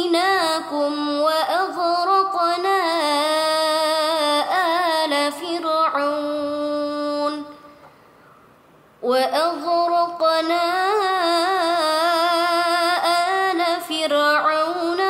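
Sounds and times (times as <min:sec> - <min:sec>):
woman chanting melodic recitation: 0:00.0 - 0:07.8, 0:09.0 - 0:15.0.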